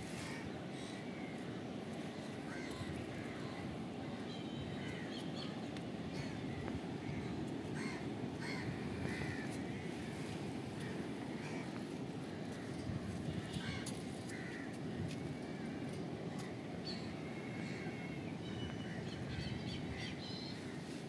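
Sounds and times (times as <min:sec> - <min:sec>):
crows cawing: 0:02.5 - 0:03.3, 0:07.0 - 0:10.2, 0:10.8 - 0:11.8, 0:13.5 - 0:14.8.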